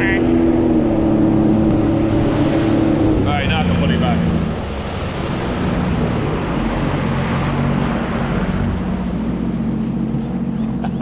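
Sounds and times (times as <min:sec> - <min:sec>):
jet ski engine running: 0:00.0 - 0:11.0.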